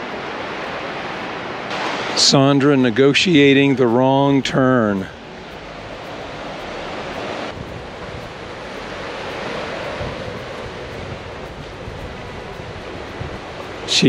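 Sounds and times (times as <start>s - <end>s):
river rushing: 0.0s - 14.0s
wind on microphone: 5.0s - 14.0s.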